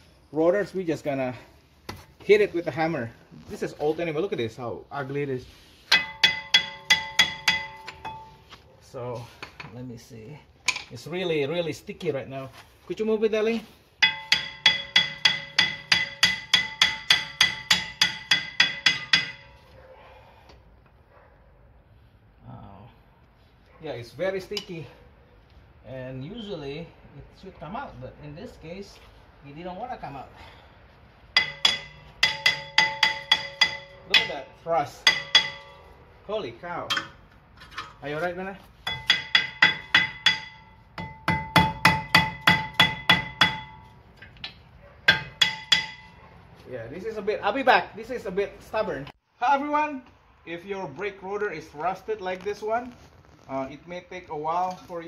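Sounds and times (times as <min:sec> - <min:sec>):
hammer striking metal brake rotor: 0:05.9 - 0:08.4, 0:14.0 - 0:19.6, 0:31.3 - 0:35.8, 0:36.9 - 0:38.0, 0:38.8 - 0:46.3.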